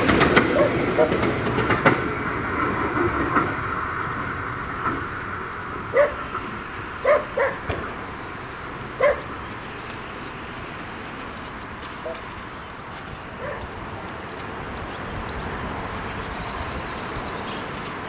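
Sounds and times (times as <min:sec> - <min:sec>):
steam train pulling away: 0:00.0 - 0:09.4
dog barking: 0:00.5 - 0:01.2, 0:05.9 - 0:06.3, 0:07.0 - 0:07.8, 0:09.0 - 0:09.4, 0:12.0 - 0:12.3, 0:13.4 - 0:13.8.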